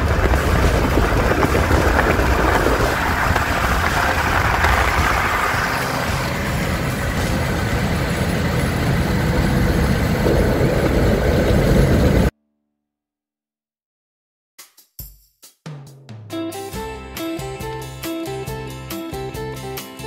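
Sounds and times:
road and engine noise in car: 0:00.0 - 0:12.3.

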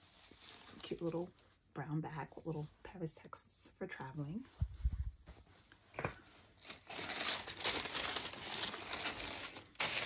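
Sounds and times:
paper packaging crinkling: 0:06.4 - 0:10.0.

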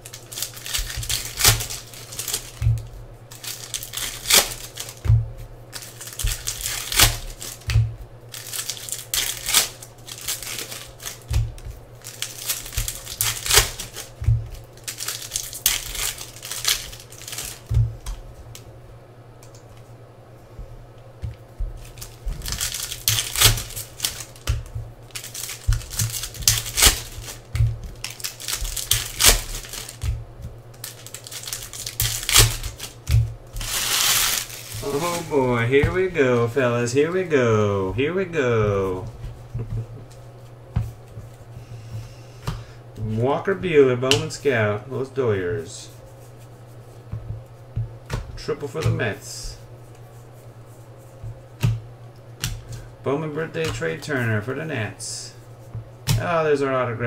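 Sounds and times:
plastic wrappers crinkling and tearing: 0:00.0 - 0:05.0, 0:05.7 - 0:07.7, 0:08.3 - 0:17.7, 0:21.8 - 0:30.1, 0:30.7 - 0:36.1
cards clicking and snapping: 0:00.0 - 0:05.1, 0:08.4 - 0:18.2, 0:21.8 - 0:30.1, 0:30.7 - 0:35.2.

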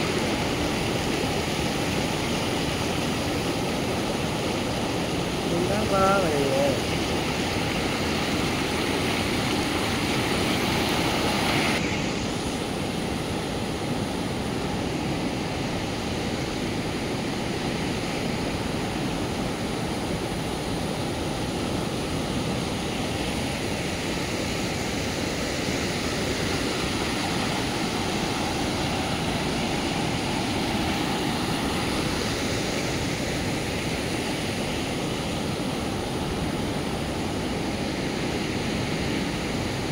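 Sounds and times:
river rushing over rocks: 0:00.0 - 0:39.9.

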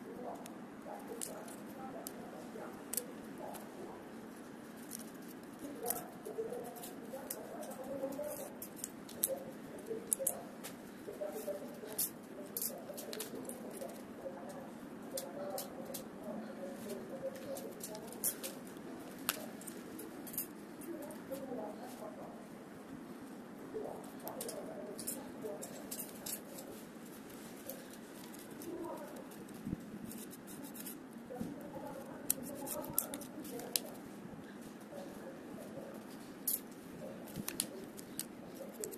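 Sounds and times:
faint murmur: 0:00.0 - 0:38.9
wooden sticks clicking: 0:32.0 - 0:34.0, 0:36.0 - 0:38.9.

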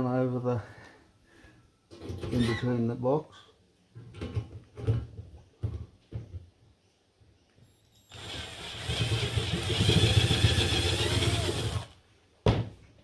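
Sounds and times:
cordless drill driving screw: 0:08.1 - 0:12.0.

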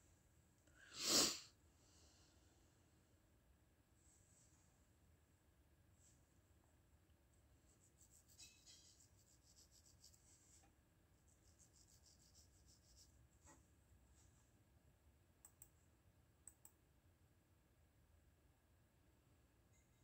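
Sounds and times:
pencil scratching on paper: 0:07.7 - 0:10.7, 0:11.3 - 0:13.6.

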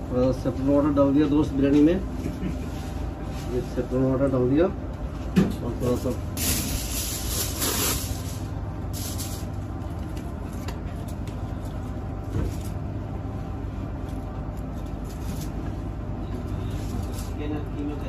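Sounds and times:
low kitchen rumble: 0:00.0 - 0:18.0
aluminium foil crinkling: 0:05.8 - 0:12.8, 0:14.0 - 0:18.0.

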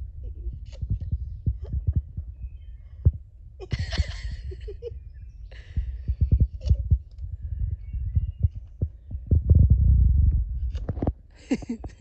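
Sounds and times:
low thumps on microphone: 0:00.0 - 0:12.0
woman laughing breathily: 0:03.6 - 0:07.0, 0:11.3 - 0:12.0.

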